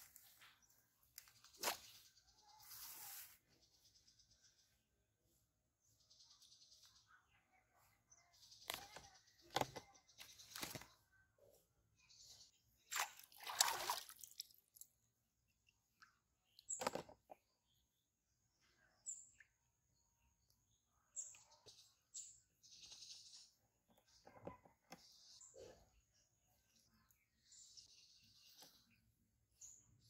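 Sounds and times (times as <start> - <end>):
water splashes: 12.9 - 14.6.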